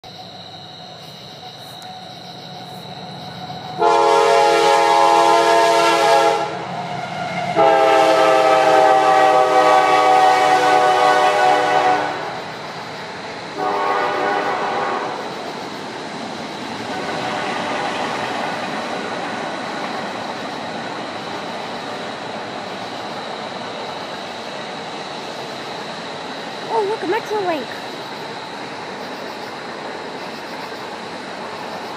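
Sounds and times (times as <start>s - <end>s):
train rumbling: 0.0s - 31.9s
locomotive horn blasts: 3.8s - 6.6s, 7.6s - 12.2s, 13.6s - 15.2s, 16.9s - 18.1s.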